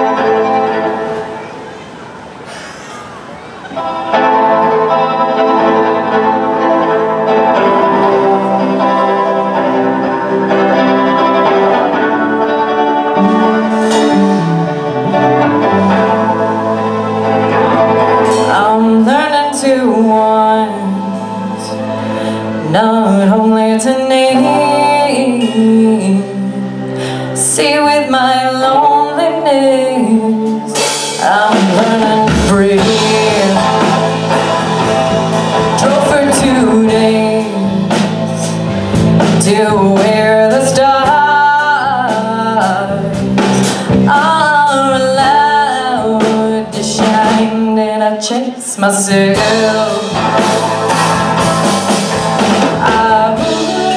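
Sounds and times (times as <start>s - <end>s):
electric guitar: 0.0s - 53.9s
drum kit: 2.4s - 20.2s, 30.5s - 47.8s, 49.0s - 53.9s
woman singing: 4.0s - 53.9s
electric bass: 4.2s - 28.5s, 30.0s - 47.8s, 49.1s - 53.9s.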